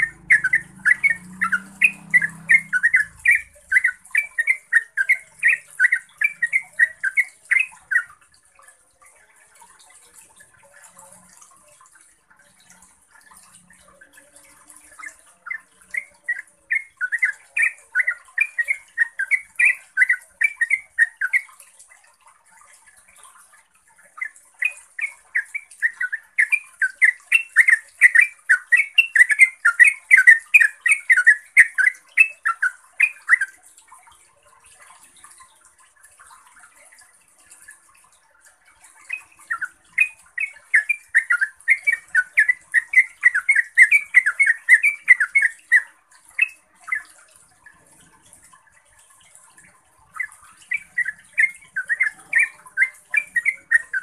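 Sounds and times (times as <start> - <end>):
bird chattering song: 0.0 - 8.2, 13.9 - 21.6, 24.1 - 33.6, 38.9 - 47.2, 49.5 - 54.0.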